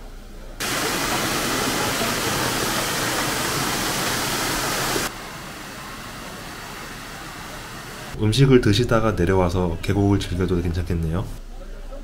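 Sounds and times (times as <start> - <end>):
stream rushing over stones: 0.6 - 8.2
waterfall splashing onto rocks: 0.6 - 8.2.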